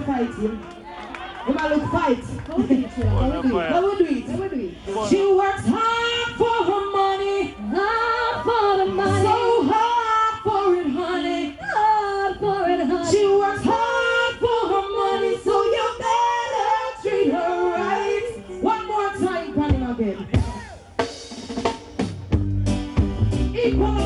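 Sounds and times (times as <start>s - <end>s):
reggae backing music: 2.9s - 11.6s, 12.2s - 24.0s
woman singing into microphone: 4.1s - 20.4s, 23.6s - 24.0s.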